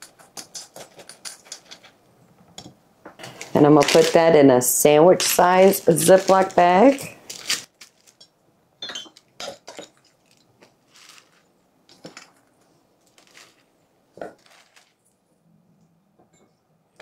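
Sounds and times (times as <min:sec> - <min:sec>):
dry powder pouring: 0:05.2 - 0:07.0, 0:10.8 - 0:11.5, 0:13.1 - 0:15.1.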